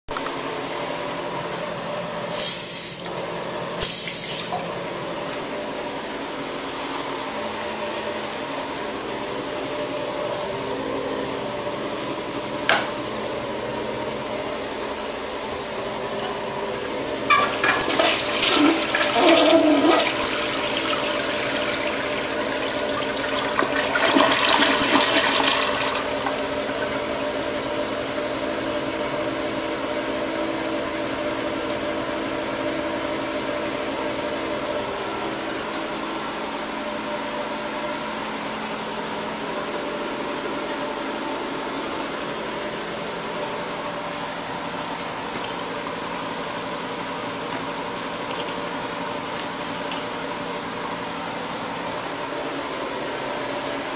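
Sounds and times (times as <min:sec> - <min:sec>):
toilet flushing: 0:03.8 - 0:04.8, 0:16.1 - 0:29.5
water running: 0:17.3 - 0:27.2.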